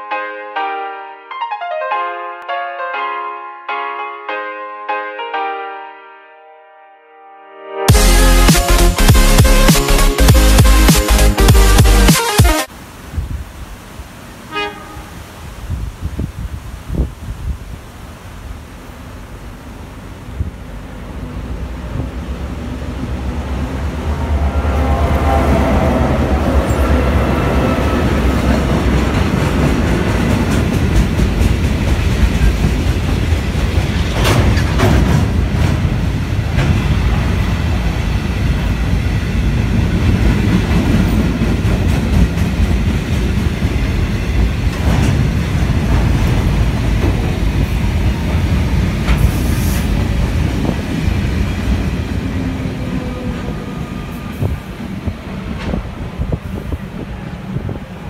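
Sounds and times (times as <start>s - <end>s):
diesel locomotive engines: 17.8s - 58.0s
train wheels rumbling on rails: 18.9s - 58.0s.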